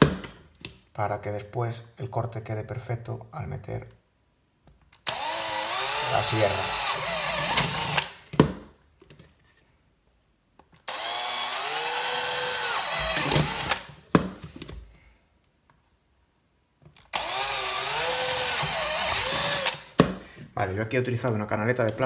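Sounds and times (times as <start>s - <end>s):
electric drill boring into plastic: 5.1s - 8.2s, 10.9s - 13.9s, 17.1s - 20.0s.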